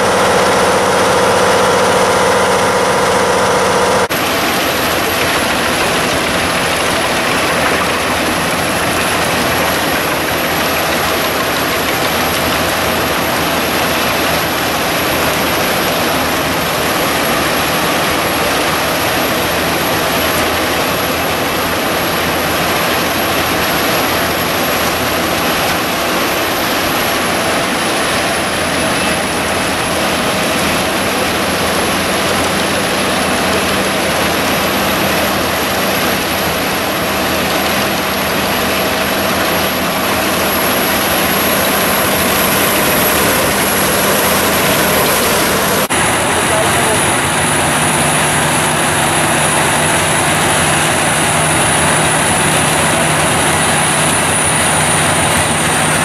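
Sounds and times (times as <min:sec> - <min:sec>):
high machine whine: 0:00.0 - 0:56.0
wood chipper running under load: 0:00.0 - 0:56.0.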